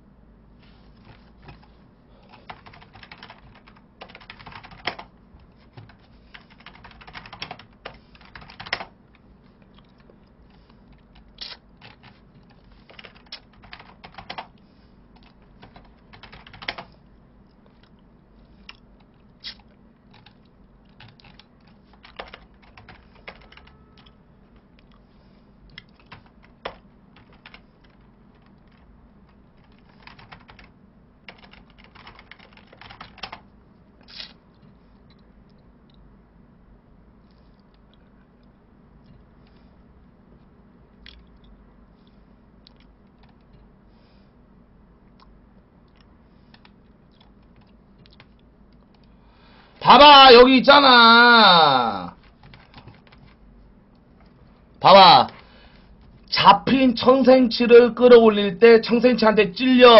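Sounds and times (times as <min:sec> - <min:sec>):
computer keyboard typing: 0:01.0 - 0:01.7, 0:02.3 - 0:09.2, 0:09.8 - 0:14.6, 0:15.2 - 0:17.0, 0:19.6 - 0:24.2, 0:25.8 - 0:33.4, 0:52.2 - 0:53.4.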